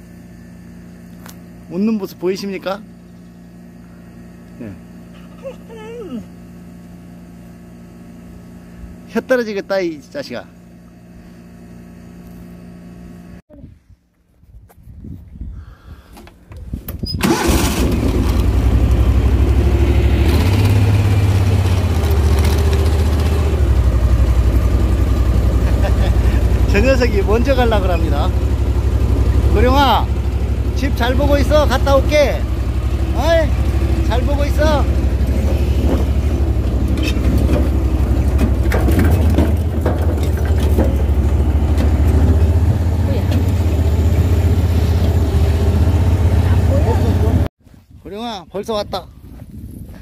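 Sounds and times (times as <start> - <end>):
vehicle engine starting and running: 16.9 - 47.5
knocks and rattles: 35.3 - 43.6.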